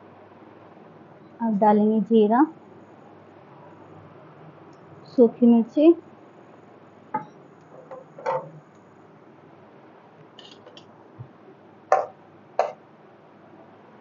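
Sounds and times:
spoon knocking on metal pan: 7.2 - 8.5, 11.9 - 12.8.

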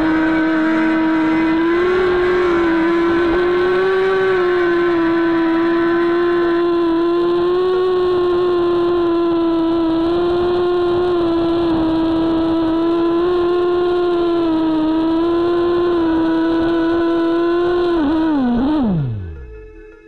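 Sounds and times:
quadcopter motors whining: 0.0 - 20.0.

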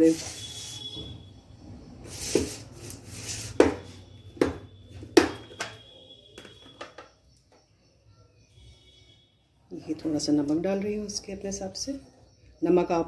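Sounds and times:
kitchen utensils tapping and knocking: 3.6 - 7.2.

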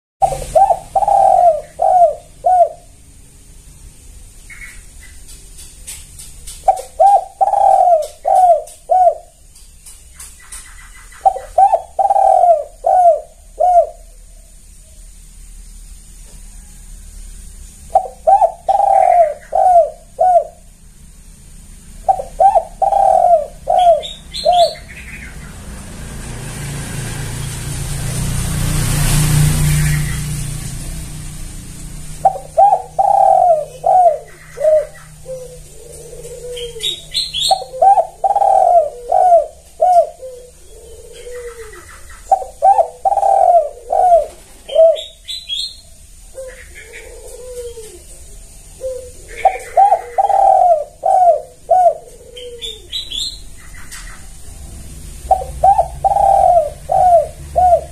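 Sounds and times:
dove cooing: 0.2 - 3.0, 6.5 - 9.5, 10.2 - 14.6, 17.8 - 20.9, 21.8 - 26.9, 28.0 - 57.9
rumbling rush of noise: 19.4 - 39.8.

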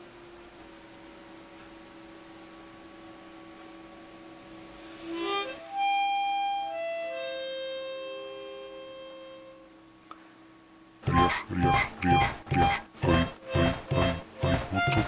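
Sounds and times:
faint steady hum: 0.0 - 15.0
music with long held notes: 5.0 - 9.8, 11.0 - 15.0.

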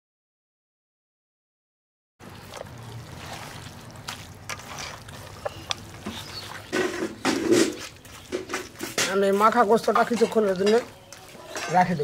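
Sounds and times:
wet squelches of kneaded meat: 2.2 - 12.0.

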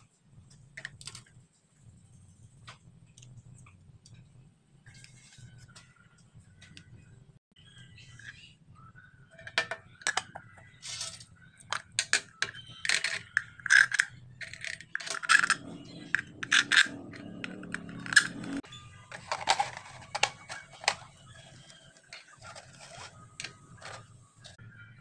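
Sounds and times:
metal bolts clinking: 11.0 - 18.6
plastic rubbing: 12.0 - 24.6.

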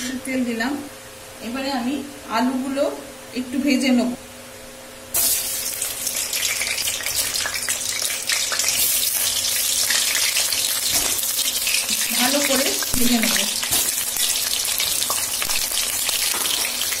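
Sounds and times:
potatoes sizzling in hot oil: 5.2 - 17.0.

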